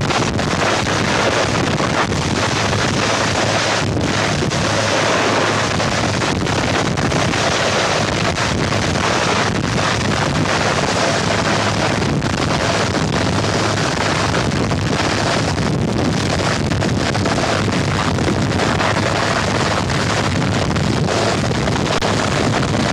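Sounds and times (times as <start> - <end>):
helicopter engine: 0.0 - 22.9
rotor downwash wind noise: 0.0 - 22.9.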